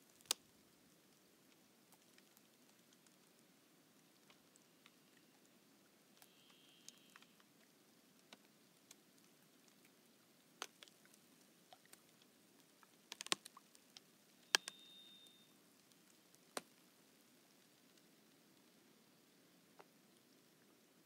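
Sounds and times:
lake ice crackling: 1.2s - 14.4s
ice snapping: 13.1s - 13.5s
thin high tone: 14.5s - 15.6s.

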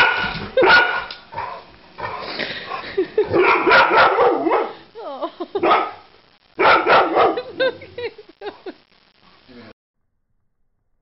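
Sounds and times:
dog barking and yipping: 0.0s - 2.2s, 3.3s - 4.8s, 5.6s - 6.0s, 6.6s - 7.5s.

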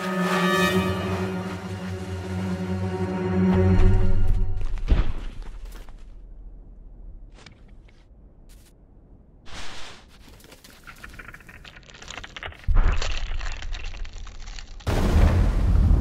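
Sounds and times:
snow crunching and crackling: 0.0s - 6.4s.

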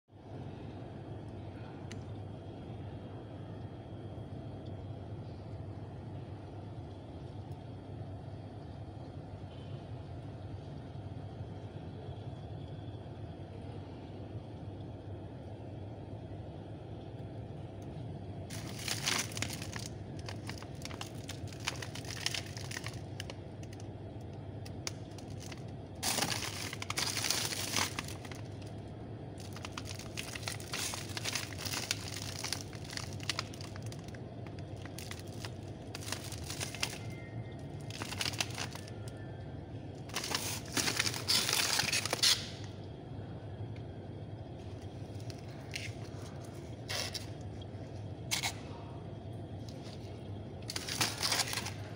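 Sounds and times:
steady low hum: 0.1s - 51.9s
plastic bags crinkling: 18.5s - 23.9s, 24.6s - 39.0s, 40.0s - 42.8s, 44.7s - 47.6s, 49.6s - 51.9s.

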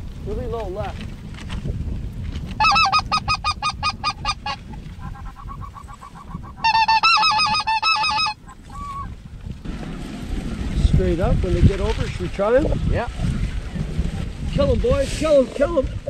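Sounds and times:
wind rumble on microphone: 0.0s - 16.0s
goose yelping: 2.6s - 9.2s.

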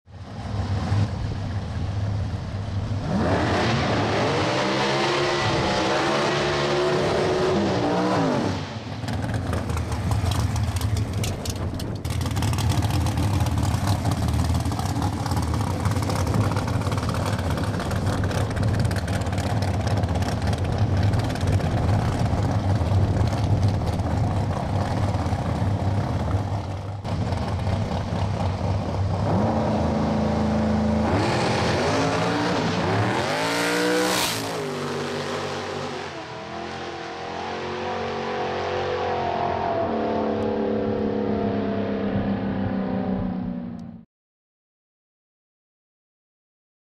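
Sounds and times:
dragster engine revving: 3.0s - 42.3s
engine rough crackling idle: 9.0s - 29.2s.

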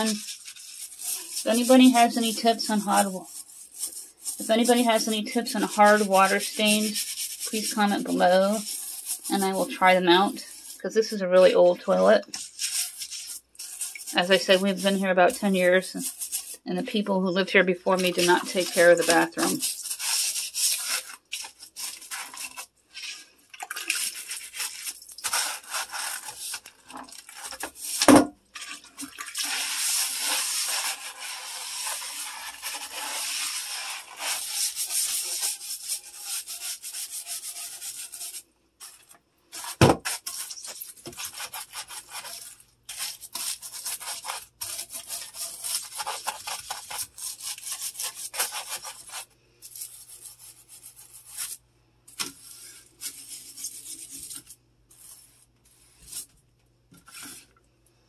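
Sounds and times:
toilet brush scrubbing bowl: 0.0s - 56.3s.

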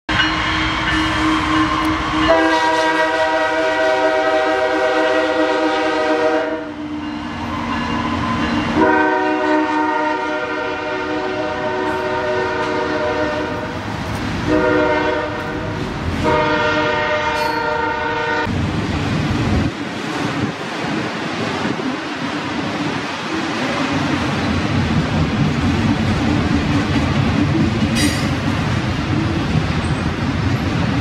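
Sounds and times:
locomotive air horn blasts: 0.1s - 13.8s, 14.4s - 18.5s
freight cars rumbling and clattering: 18.5s - 31.0s.

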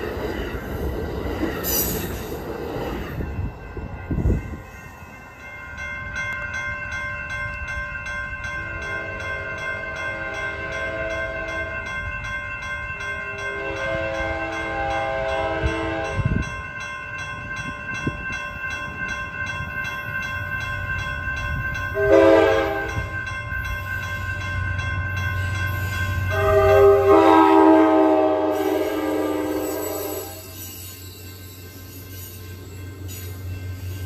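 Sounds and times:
crossing warning bell ringing: 0.0s - 34.0s
train rumble: 0.0s - 34.0s
train horn blasts: 10.0s - 11.5s, 13.2s - 16.4s, 22.0s - 23.1s, 26.3s - 30.6s.

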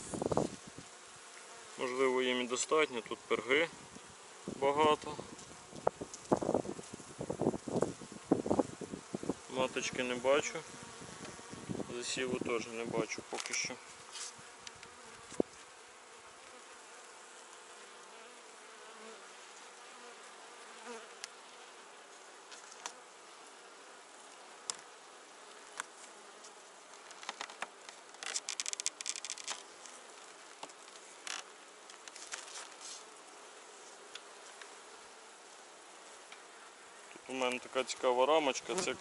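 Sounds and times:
honeybees buzzing: 0.0s - 39.0s
wooden frames clicking and scraping: 27.0s - 29.7s.

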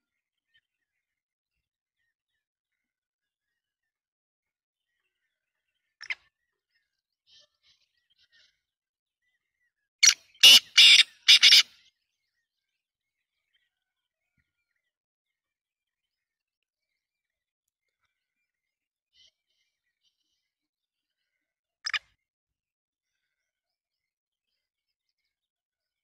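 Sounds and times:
francolin calling: 10.0s - 11.7s.

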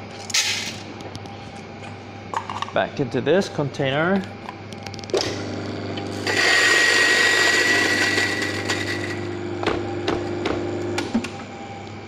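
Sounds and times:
grinder motor humming: 5.2s - 12.0s
coffee grinder grinding beans: 5.3s - 11.0s.

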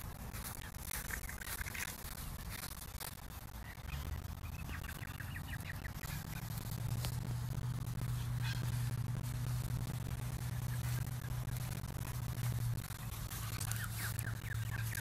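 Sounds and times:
low steady hum: 0.0s - 15.0s
faint bird calls: 3.6s - 11.7s, 12.8s - 15.0s.

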